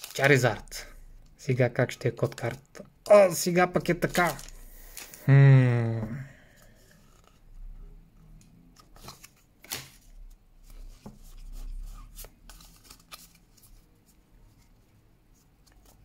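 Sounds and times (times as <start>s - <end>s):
cards being flipped: 8.7s - 13.8s.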